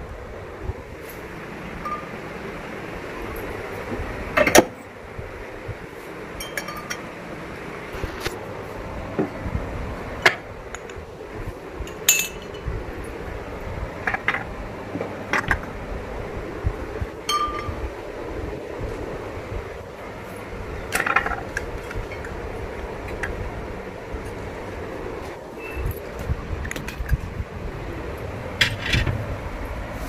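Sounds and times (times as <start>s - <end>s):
glasses and dishes clinking: 1.8s - 2.1s, 6.4s - 7.1s, 11.9s - 12.6s, 17.3s - 17.8s.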